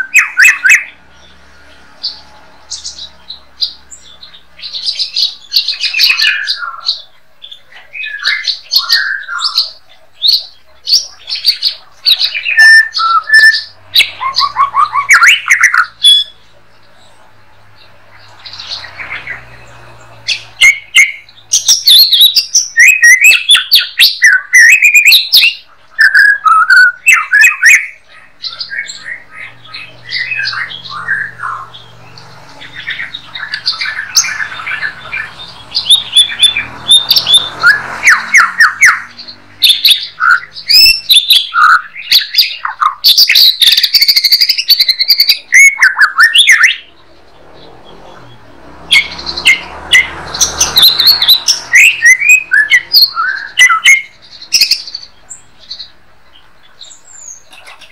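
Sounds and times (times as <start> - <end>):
bird singing whistles and trills: 0.0 - 16.4, 17.8 - 47.0, 47.8 - 57.9.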